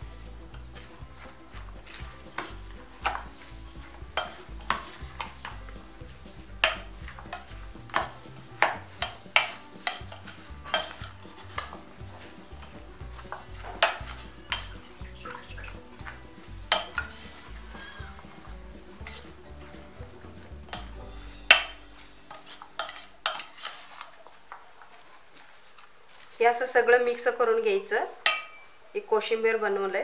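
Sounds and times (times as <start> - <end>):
spoon scraping steel bowl: 8.6 - 11.8, 21.4 - 24.3.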